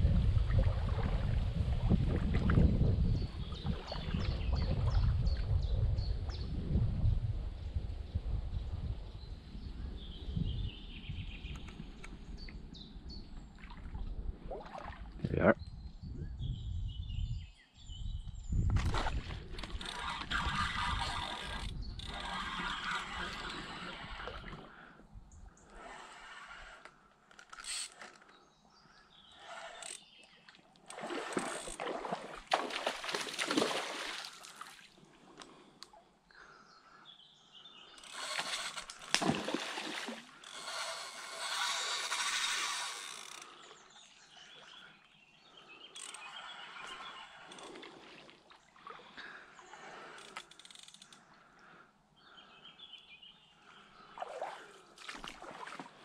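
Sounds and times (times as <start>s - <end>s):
fish splashing at water surface: 38.4s - 40.4s.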